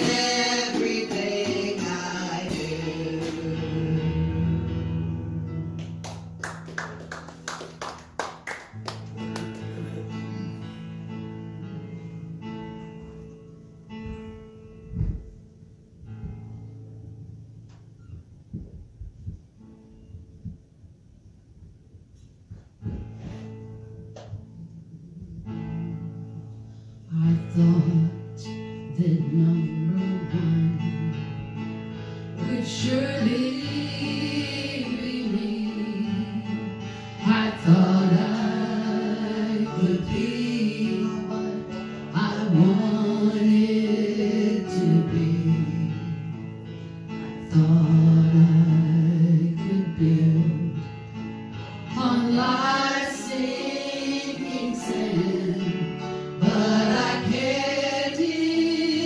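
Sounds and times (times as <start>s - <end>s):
person singing: 0.0s - 5.8s, 51.9s - 59.0s
guitar accompaniment: 0.0s - 20.9s, 22.3s - 59.0s.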